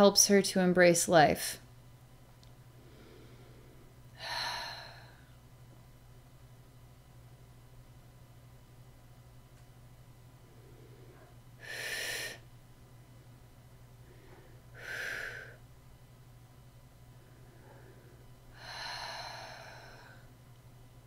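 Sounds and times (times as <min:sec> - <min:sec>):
faint low hum: 0:00.0 - 0:21.0
woman breathing: 0:02.7 - 0:05.4, 0:10.4 - 0:12.5, 0:13.8 - 0:15.7, 0:17.1 - 0:20.4.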